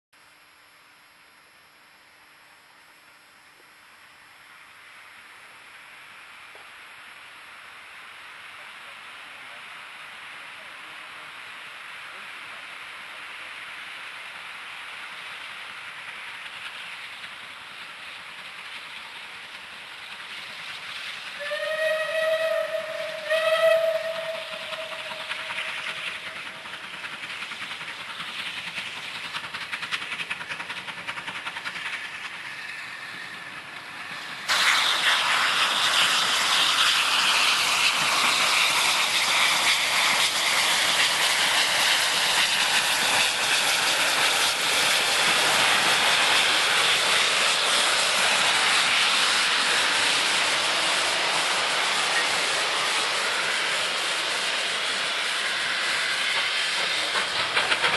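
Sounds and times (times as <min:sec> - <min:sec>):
steam locomotive exhaust: 0:07.4 - 0:57.9
train wheel noise: 0:09.4 - 0:57.9
steam whistle blasts: 0:21.4 - 0:25.8.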